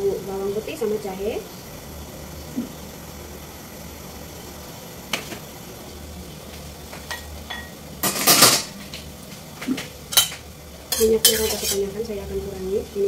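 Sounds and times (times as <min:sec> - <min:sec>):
cookware clattering scrape: 0:07.1 - 0:08.7, 0:10.2 - 0:11.9.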